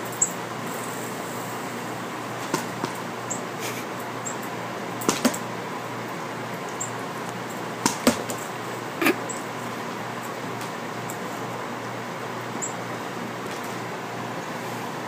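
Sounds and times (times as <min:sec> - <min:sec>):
steady hiss: 0:00.0 - 0:03.0.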